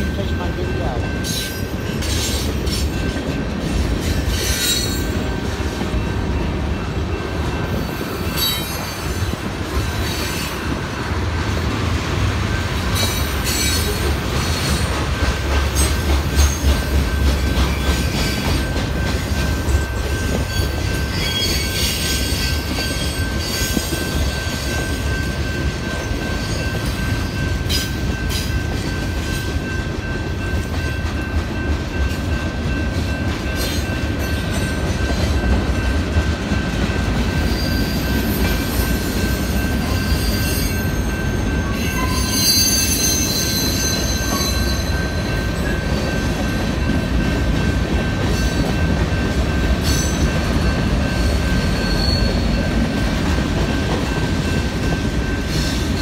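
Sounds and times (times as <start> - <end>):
train wheels rumbling on rail: 0.0 - 56.0
high wheel squeal: 37.4 - 45.1, 51.6 - 52.6.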